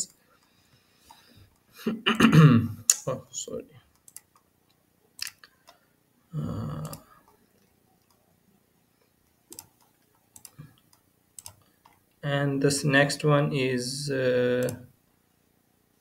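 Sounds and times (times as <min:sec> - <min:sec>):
computer mouse clicks: 0:03.9 - 0:05.8, 0:06.8 - 0:08.2, 0:09.0 - 0:12.1.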